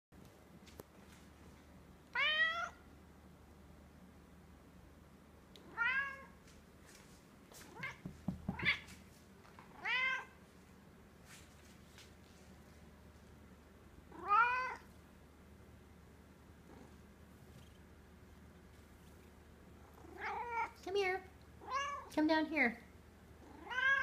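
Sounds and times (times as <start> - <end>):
cat meowing: 2.2 - 2.8, 5.6 - 6.3, 9.8 - 10.4, 14.1 - 14.9, 21.6 - 22.1, 23.5 - 24.0
soft knocks: 7.7 - 9.0.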